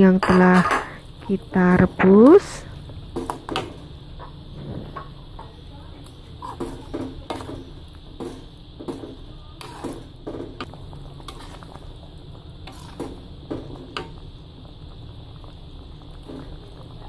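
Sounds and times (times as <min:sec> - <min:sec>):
sauce bubbling: 0:06.1 - 0:17.0
metal spatula scraping a wok: 0:06.4 - 0:07.8, 0:09.6 - 0:10.2, 0:11.2 - 0:11.9, 0:12.6 - 0:13.2.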